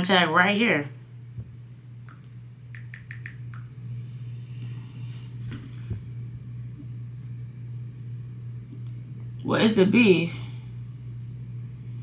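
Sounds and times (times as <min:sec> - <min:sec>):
low hum: 0:00.3 - 0:12.0
laptop keyboard typing: 0:02.8 - 0:03.6.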